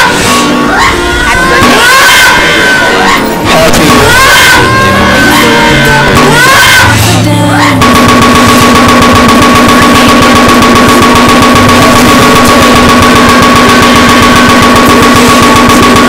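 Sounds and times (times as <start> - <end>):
steady two-note buzzing tone: 0.0 - 16.0
dense rapid distorted crackle: 7.8 - 16.0.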